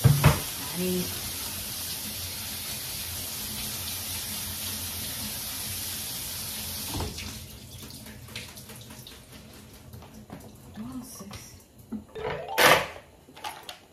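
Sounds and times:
kitchen tap running into sink: 0.0s - 12.5s.

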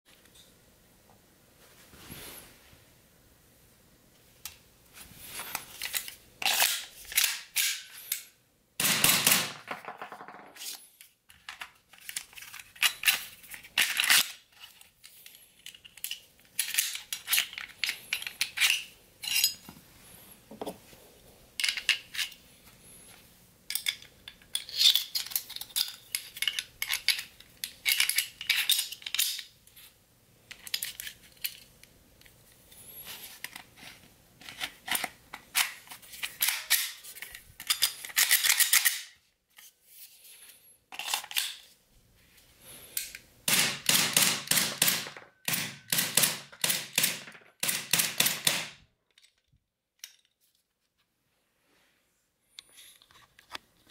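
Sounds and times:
toy pistol parts clicking and scraping: 5.4s - 8.4s, 10.6s - 19.6s, 21.6s - 22.4s, 23.7s - 29.5s, 30.5s - 39.7s, 40.9s - 41.7s, 42.9s - 43.2s.

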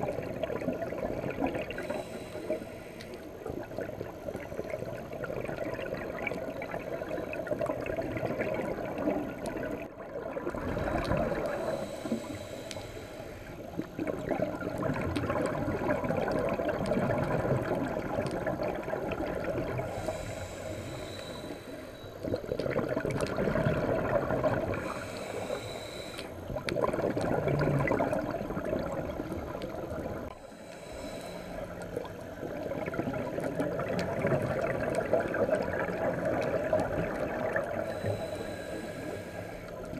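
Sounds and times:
exhaled bubbles burbling: 0.0s - 2.0s, 3.4s - 11.9s, 13.6s - 20.5s, 22.2s - 25.1s, 26.4s - 30.3s, 32.0s - 38.0s
regulator hissing on inhale: 1.6s - 3.7s, 10.9s - 14.1s, 19.7s - 22.4s, 24.7s - 26.6s, 30.3s - 32.6s, 36.5s - 39.9s.

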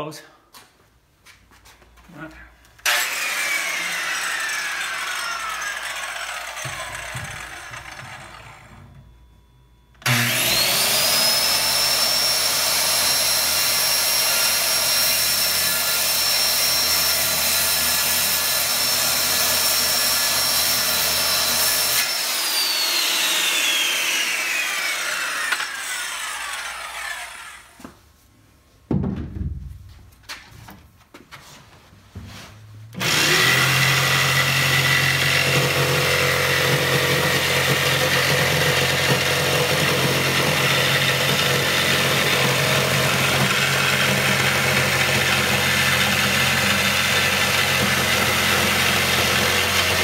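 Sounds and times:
circular saw whine: 2.8s - 27.8s.

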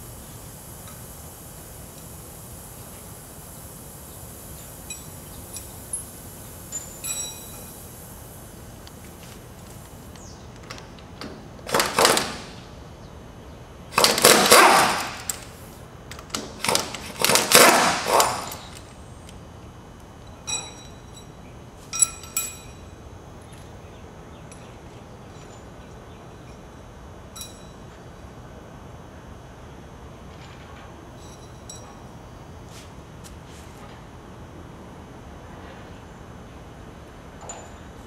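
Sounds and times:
steel clinking on steel: 6.7s - 7.8s, 20.3s - 22.9s.

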